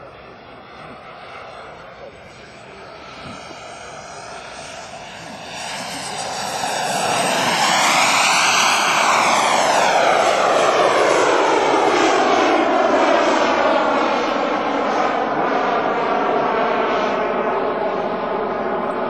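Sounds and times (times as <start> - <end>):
model jet flying past: 0.0 - 19.0.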